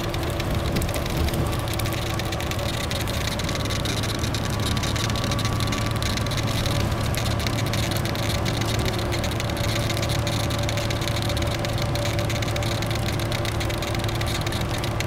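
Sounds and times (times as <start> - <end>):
bus engine hum: 0.0 - 15.0.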